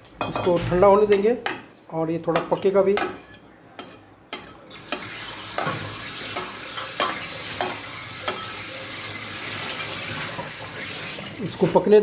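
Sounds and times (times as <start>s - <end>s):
spatula scraping metal pan: 2.5s - 10.7s
pickle sizzling in pan: 3.2s - 11.6s.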